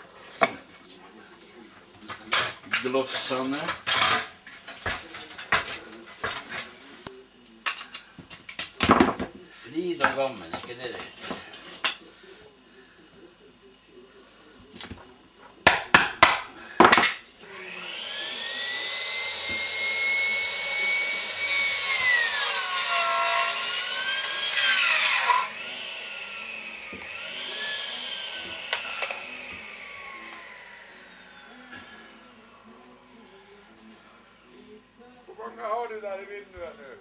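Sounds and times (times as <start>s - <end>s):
mitre saw cutting wood: 17.4s - 32.4s.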